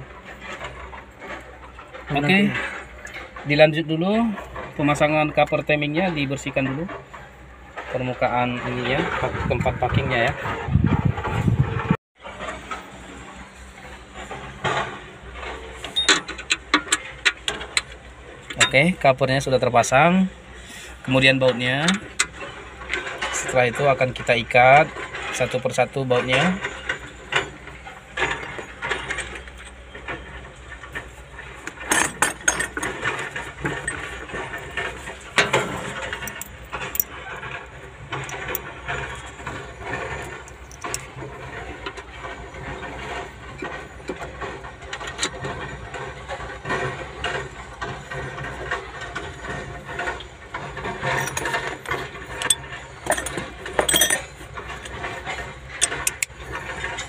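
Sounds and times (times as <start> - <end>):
metallic clinks of hand tools: 52.4 - 54.3.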